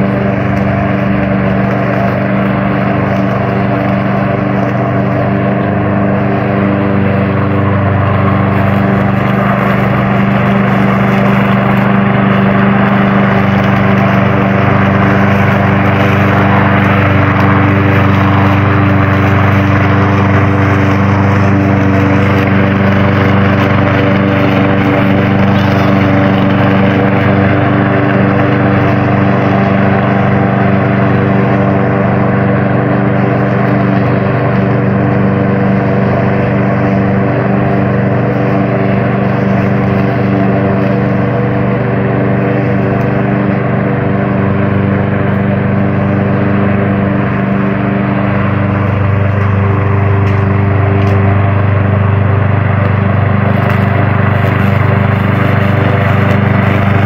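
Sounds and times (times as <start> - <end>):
lawn mower engine running: 0.0 - 57.0.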